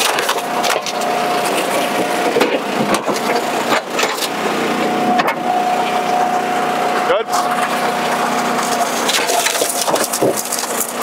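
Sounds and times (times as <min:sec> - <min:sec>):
wood cracking and snapping: 0:00.0 - 0:01.7, 0:07.4 - 0:11.0
log splitter engine running: 0:00.0 - 0:11.0.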